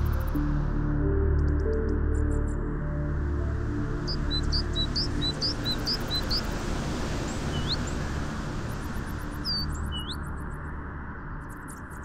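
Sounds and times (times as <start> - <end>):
songbird chirping: 3.8 - 8.0, 9.2 - 10.5.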